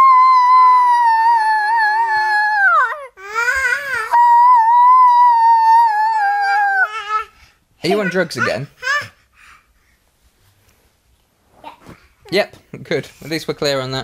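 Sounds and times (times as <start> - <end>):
child screeching: 0.0 - 9.1.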